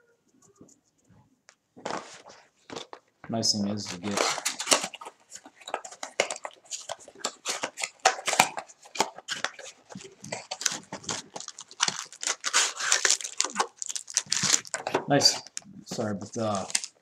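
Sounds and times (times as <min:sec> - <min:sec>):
cardboard boxes handled and opened: 0:03.8 - 0:17.0.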